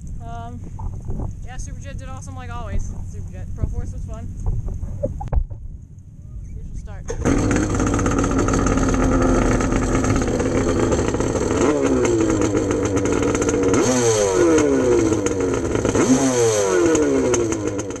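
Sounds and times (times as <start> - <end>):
jet ski engine idling and revving: 6.9 - 18.0.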